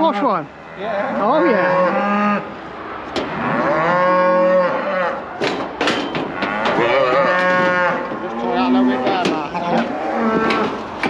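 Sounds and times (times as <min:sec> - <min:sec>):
calves bawling: 0:00.0 - 0:11.0
sharp knocks: 0:05.4 - 0:08.3.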